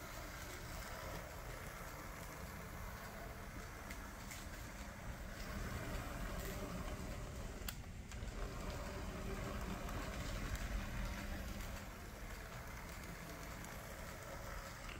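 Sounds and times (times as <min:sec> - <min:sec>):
model train running on track: 0:00.0 - 0:14.9.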